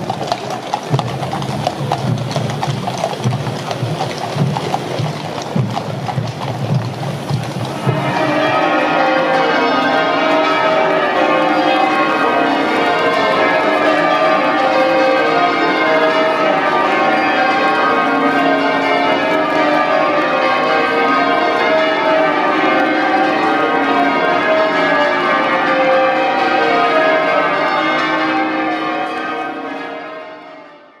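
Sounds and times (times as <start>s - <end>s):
church bells change-ringing: 6.6s - 31.0s.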